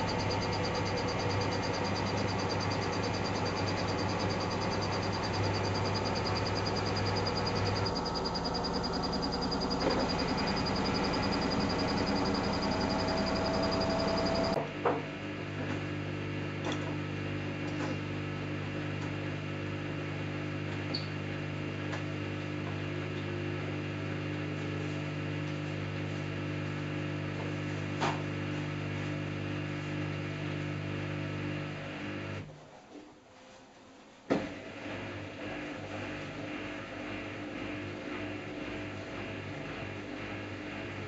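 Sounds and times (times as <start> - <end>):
washing machine rushing: 0.0 - 14.6, 34.3 - 41.0
washing machine low hum: 0.0 - 32.5, 34.4 - 41.0.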